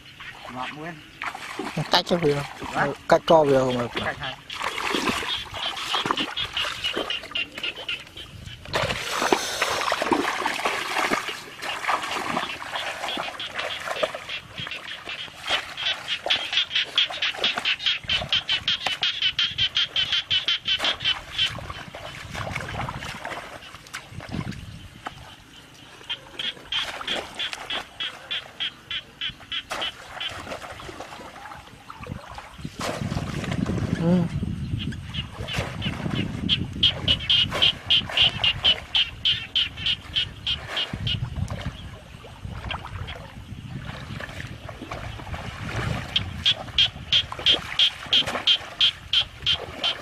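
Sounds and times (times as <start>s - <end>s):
pulsing animal chorus: 0.0s - 23.8s, 25.1s - 31.6s, 34.8s - 41.9s
frog calling: 0.0s - 32.7s, 33.9s - 50.0s
feet splashing through water: 0.0s - 34.2s, 35.0s - 50.0s.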